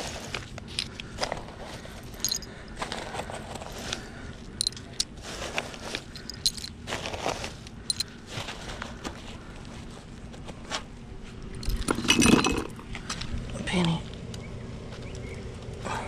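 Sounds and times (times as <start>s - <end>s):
plastic bags rustling: 0.0s - 12.9s
light metallic clinks: 2.0s - 2.5s, 4.6s - 5.1s, 6.2s - 6.7s, 7.9s - 8.1s.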